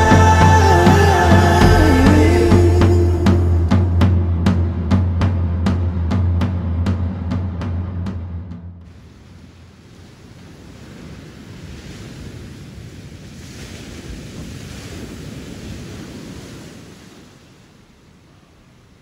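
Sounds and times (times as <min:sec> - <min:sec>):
wind rumbling on microphone: 0:08.9 - 0:19.0.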